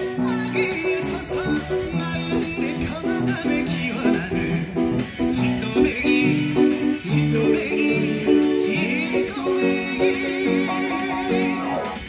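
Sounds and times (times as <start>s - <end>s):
upright piano playing: 0.0s - 12.0s
person singing with vibrato: 5.4s - 12.0s.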